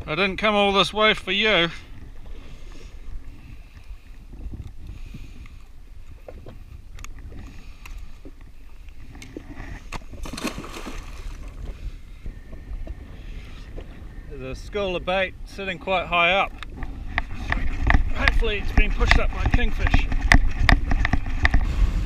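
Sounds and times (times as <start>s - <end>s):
water lapping against hull: 0.0s - 22.0s
wind rumble on microphone: 1.4s - 22.0s
fishing tackle clicks and knocks: 16.6s - 21.7s.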